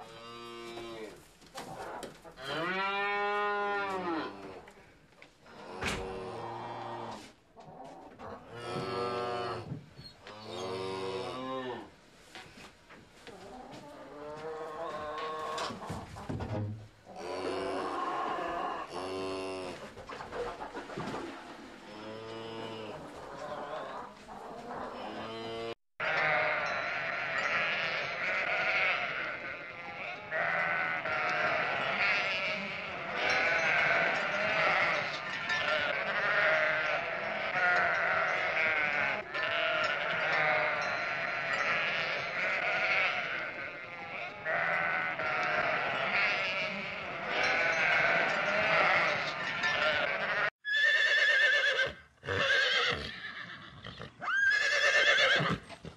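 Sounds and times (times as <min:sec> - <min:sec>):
sheep bleating: 0:25.0 - 0:50.5.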